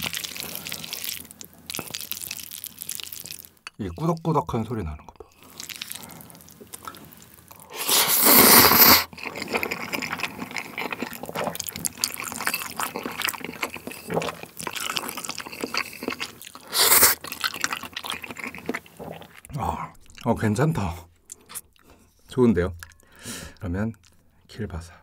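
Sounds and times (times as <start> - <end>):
wet chewing: 0.0 - 3.6, 5.2 - 20.3
noodles slurping: 5.4 - 19.5.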